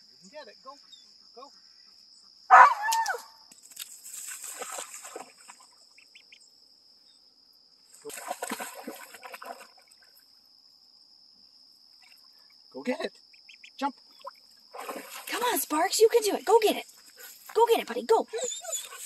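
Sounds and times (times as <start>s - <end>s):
high insect drone: 0.0s - 19.0s
dog splashing in water: 3.7s - 5.8s, 8.0s - 10.1s, 14.2s - 15.7s.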